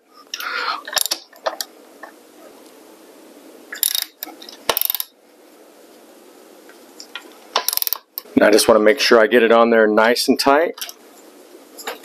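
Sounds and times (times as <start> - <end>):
ratchet wrench clicking: 3.8 - 5.1, 7.6 - 8.2.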